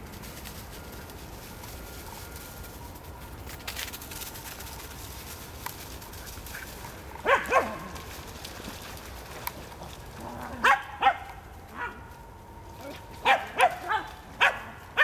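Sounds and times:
dog barking: 0:07.2 - 0:07.8, 0:10.6 - 0:12.0, 0:13.2 - 0:15.0.

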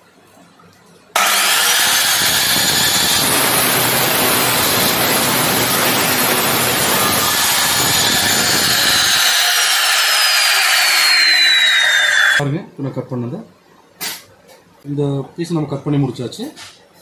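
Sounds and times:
abrasive wheel grinding metal pipe: 0:01.2 - 0:12.4
cut-off saw motor whining: 0:01.2 - 0:12.4.

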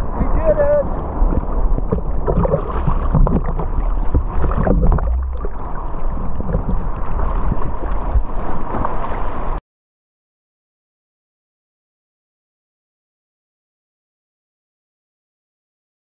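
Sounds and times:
heavy low rumble: 0:00.0 - 0:08.4
water rushing and splashing: 0:00.0 - 0:09.6
wind buffeting microphone: 0:00.0 - 0:09.6.

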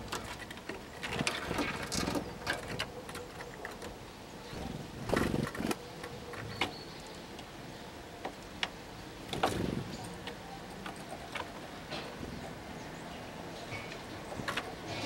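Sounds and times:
birds rustling wings: 0:00.0 - 0:06.5.

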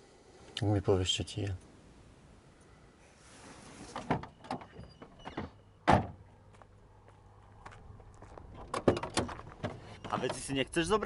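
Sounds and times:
rustling: 0:03.0 - 0:04.2.

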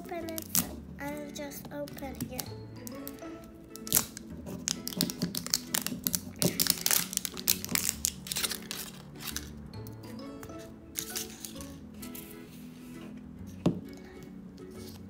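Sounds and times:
background music: 0:00.0 - 0:15.0
wrapper crinkling and tearing: 0:00.2 - 0:00.8, 0:03.8 - 0:09.5, 0:11.0 - 0:11.8.

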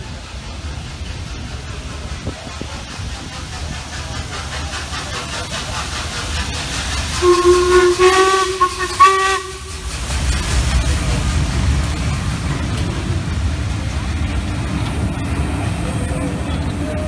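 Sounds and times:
steam locomotive exhaust beats: 0:00.0 - 0:17.0
steam whistle blasts: 0:07.2 - 0:09.8.

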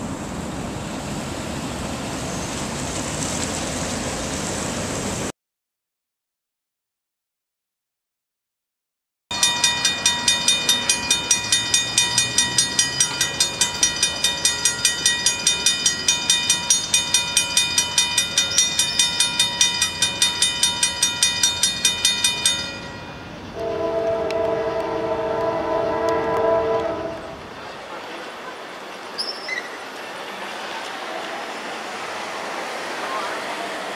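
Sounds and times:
railroad crossing bell ringing: 0:09.3 - 0:27.3
train horn chord: 0:23.5 - 0:27.4.

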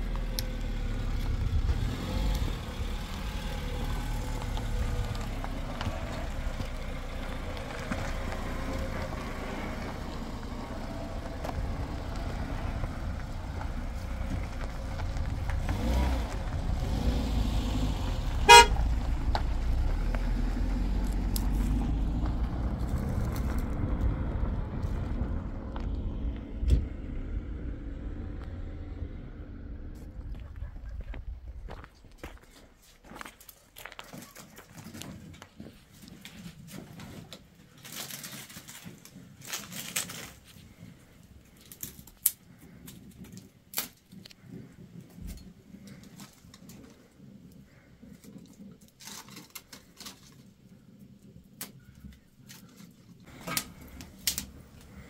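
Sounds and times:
car engine driving off: 0:00.0 - 0:31.9, 0:53.3 - 0:55.0
car horn toot: 0:18.4 - 0:18.9.

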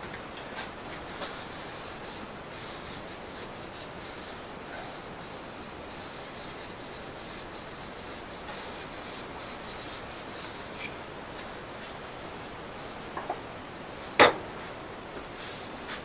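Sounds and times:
cloth rag rubbing wood: 0:00.6 - 0:12.0.

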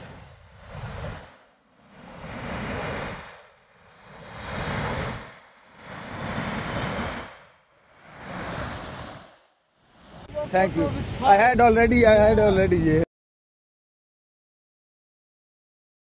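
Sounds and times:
waterfall rushing: 0:11.6 - 0:12.9.

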